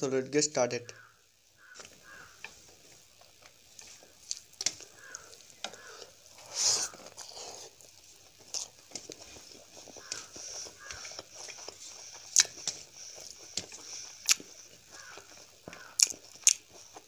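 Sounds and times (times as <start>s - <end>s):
fingers squishing rice: 3.3s - 17.0s.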